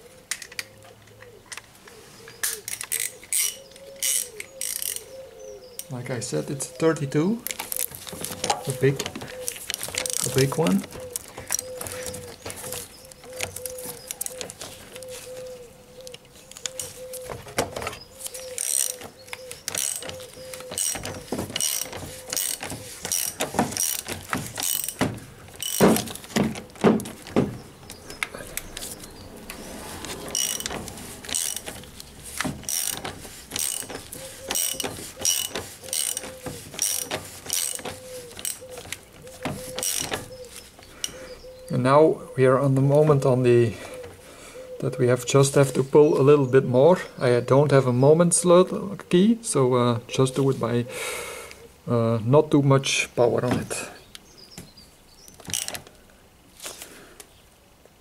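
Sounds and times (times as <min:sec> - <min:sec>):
hand ratchet clicking: 0:02.4 - 0:05.1, 0:07.4 - 0:14.6, 0:18.2 - 0:29.0, 0:30.2 - 0:41.2, 0:55.3 - 0:55.9.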